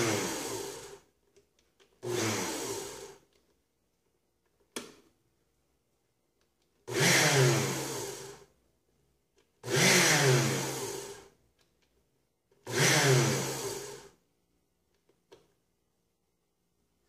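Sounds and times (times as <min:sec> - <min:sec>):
blender motor whirring: 0:00.0 - 0:01.1, 0:02.0 - 0:03.2, 0:06.9 - 0:08.5, 0:09.6 - 0:11.4, 0:12.7 - 0:14.2.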